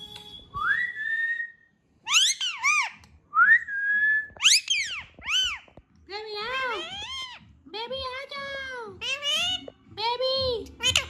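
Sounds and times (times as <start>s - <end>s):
parakeet whistling: 2.1s - 3.0s, 4.2s - 5.7s.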